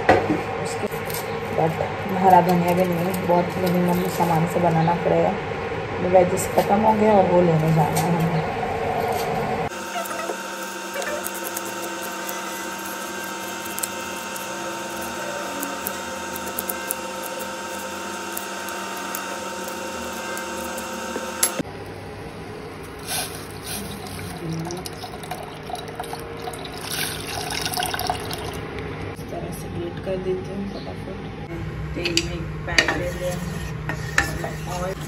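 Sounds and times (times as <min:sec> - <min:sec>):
steady hum: 0:00.0 - 0:35.0
tea bubbling in steel pan: 0:23.0 - 0:28.6
milk pouring: 0:23.5 - 0:28.6.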